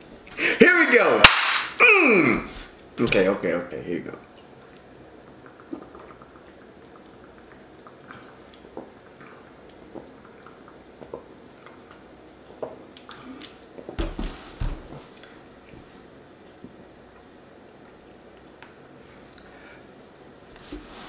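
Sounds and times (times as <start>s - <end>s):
wet swallowing clicks: 4.3s - 12.1s
man gulping soda: 4.4s - 13.9s.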